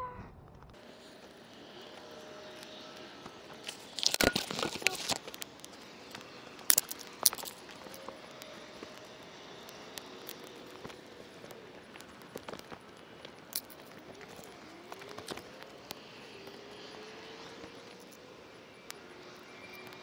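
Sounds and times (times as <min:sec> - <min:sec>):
twigs and leaves crunching: 0:00.7 - 0:15.9.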